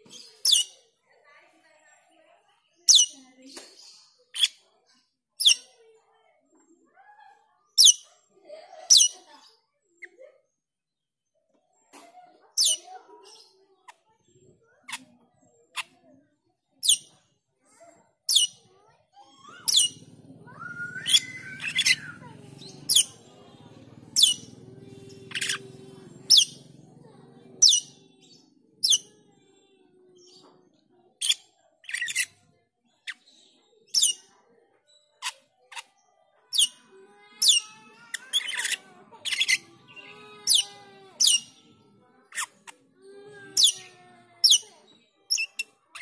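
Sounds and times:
bird chattering twitter: 2.9 - 4.6, 7.8 - 8.0, 19.5 - 29.2, 31.2 - 32.4, 33.9 - 34.3, 35.0 - 41.7, 43.6 - 46.0
starling calling: 19.6 - 28.0, 36.5 - 42.8.

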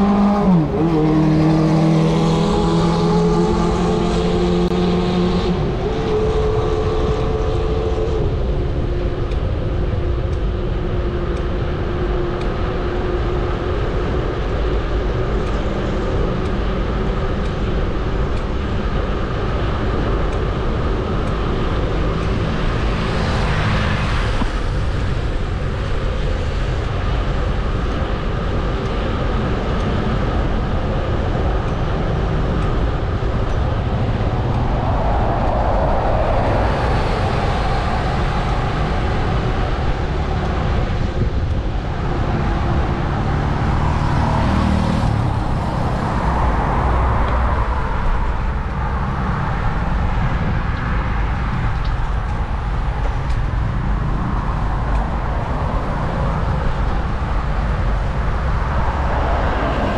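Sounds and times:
road traffic noise: 0.0 - 59.9
vehicles passing: 0.0 - 59.9
wind rumble on microphone: 0.0 - 59.9.

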